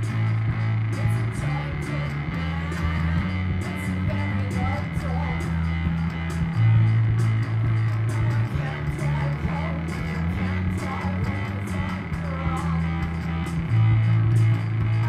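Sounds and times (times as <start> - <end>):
live rock band music: 0.0 - 15.0
woman singing: 1.0 - 5.7, 8.1 - 13.4.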